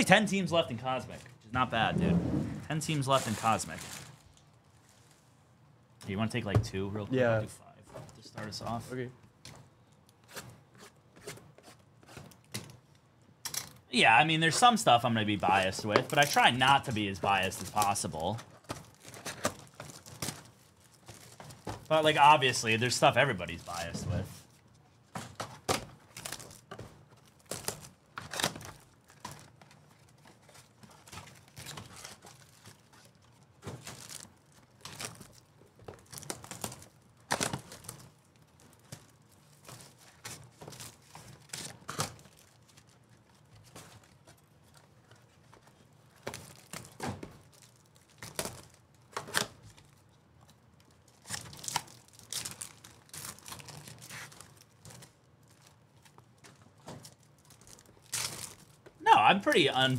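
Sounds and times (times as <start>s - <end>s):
foil wrappers tearing and crinkling: 2.8s - 4.4s, 15.5s - 23.9s, 26.1s - 44.8s, 46.2s - 58.8s.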